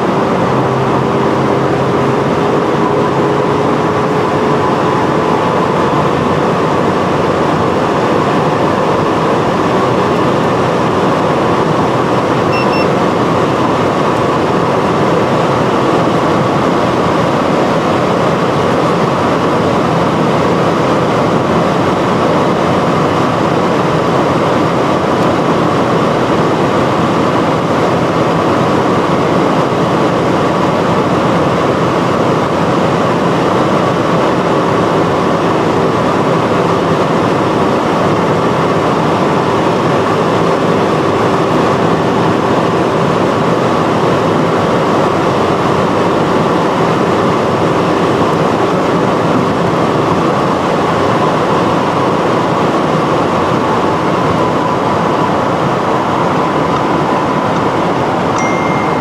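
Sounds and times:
car engine drone: 0:00.0 - 0:59.0.

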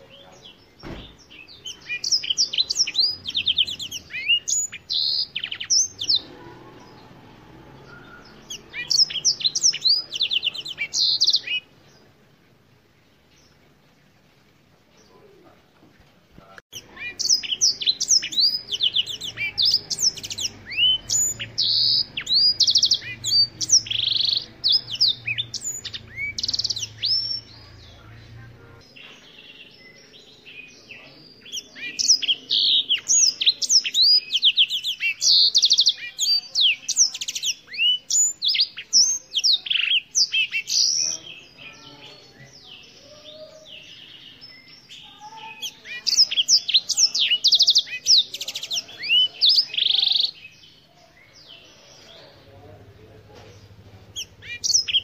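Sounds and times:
canary singing trills and whistles: 0:00.0 - 0:11.8, 0:16.7 - 0:52.4, 0:53.6 - 0:55.0.

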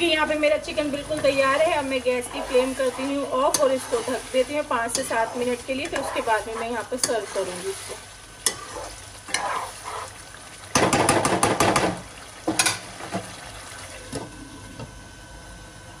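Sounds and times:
faint sizzle: 0:00.0 - 0:16.0
metal spoon scraping curry in pan: 0:01.6 - 0:10.1.

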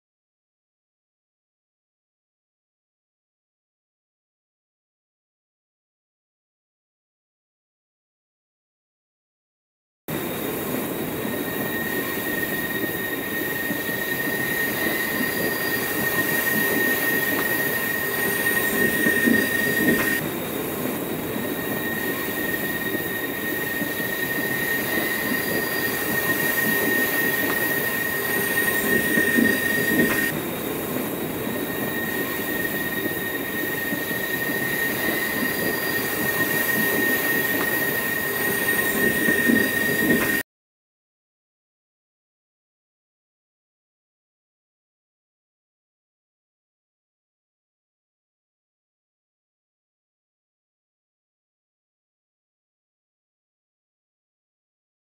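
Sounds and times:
train rolling on rails: 0:10.1 - 0:40.4
high-pitched wheel squeal: 0:21.6 - 0:30.3, 0:31.7 - 0:40.4.

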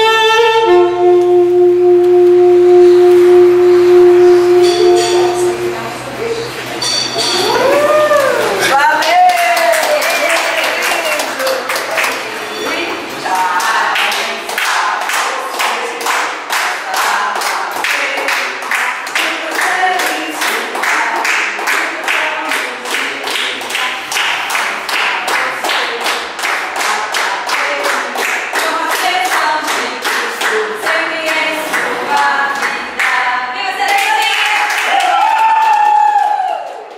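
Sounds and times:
rhythmic clapping: 0:06.8 - 0:36.9
group singing: 0:12.5 - 0:34.1.

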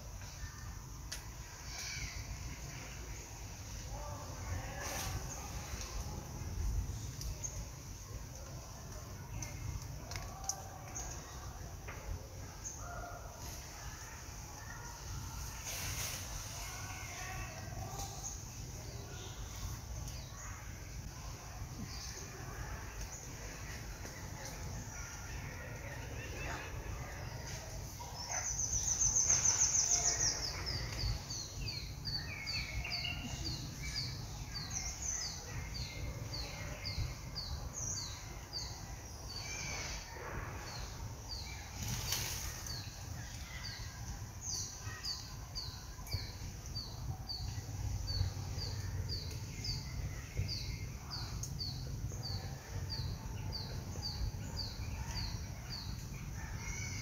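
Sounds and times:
rustling: 0:15.0 - 0:18.2, 0:41.6 - 0:43.4.

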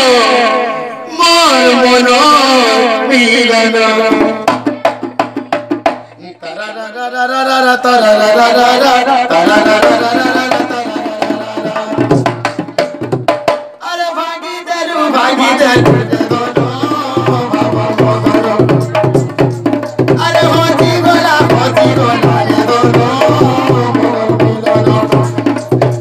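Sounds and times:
man singing: 0:00.0 - 0:13.1, 0:13.8 - 0:26.0
hand drum beat: 0:04.1 - 0:06.2, 0:09.3 - 0:13.8, 0:15.8 - 0:26.0.

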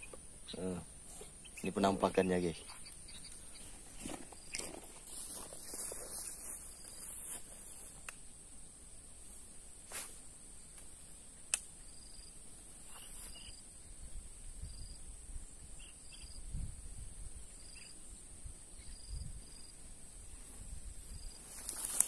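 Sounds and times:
high-pitched insect chirring: 0:00.0 - 0:09.3, 0:11.0 - 0:22.0
sharp click: 0:11.5 - 0:11.7.

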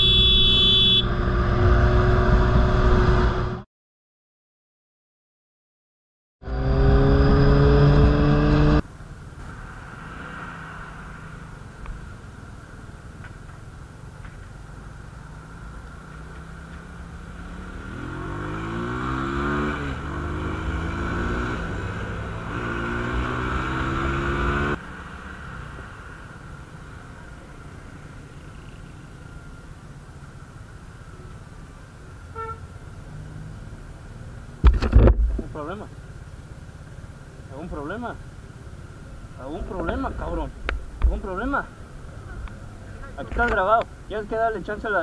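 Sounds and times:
motorcycle riding in traffic: 0:00.0 - 0:03.6, 0:06.4 - 0:45.0
motorcycle engine revving: 0:06.4 - 0:12.2, 0:16.1 - 0:29.0.

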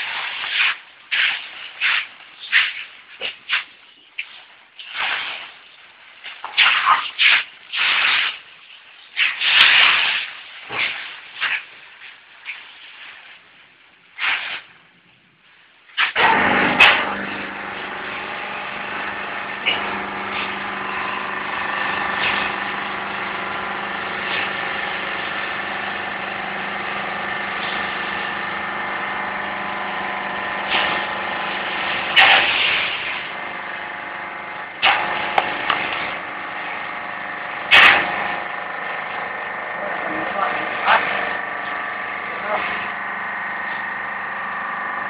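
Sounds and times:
baling press motor humming: 0:16.2 - 0:45.0.

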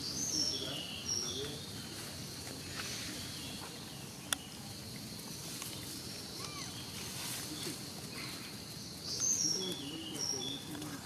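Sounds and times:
outdoor background noise: 0:00.0 - 0:11.0
high chirping animal calls: 0:06.2 - 0:07.1.

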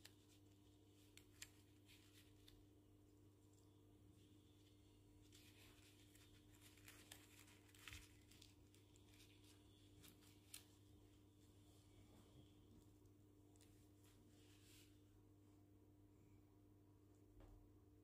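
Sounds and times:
low steady hum: 0:00.0 - 0:18.0
paper and cardboard rustling: 0:05.2 - 0:10.9.

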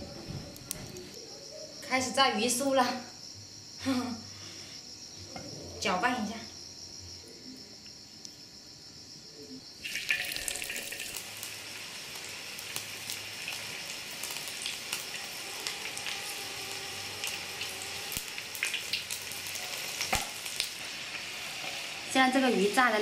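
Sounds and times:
oil crackling pops: 0:09.8 - 0:16.2, 0:17.2 - 0:20.9
fish sizzling in hot oil: 0:09.8 - 0:23.0.

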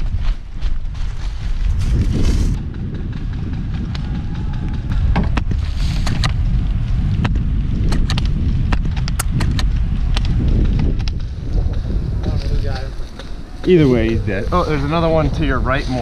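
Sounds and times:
wind buffeting microphone: 0:00.0 - 0:16.0
sharp clicks and snaps: 0:07.2 - 0:11.3.

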